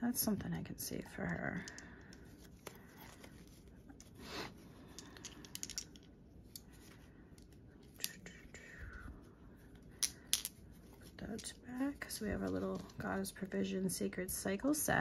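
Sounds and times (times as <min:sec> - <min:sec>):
light clicks of small items: 0:01.2 - 0:03.4.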